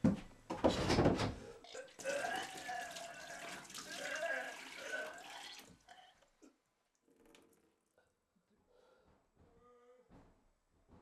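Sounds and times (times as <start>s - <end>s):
liquid gushing and splashing: 1.7s - 6.1s.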